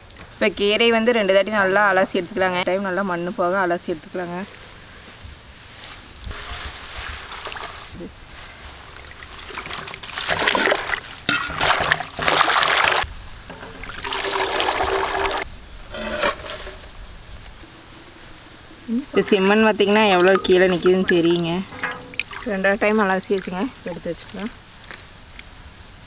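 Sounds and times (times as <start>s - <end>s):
water splashing and sloshing: 5.6s - 25.0s.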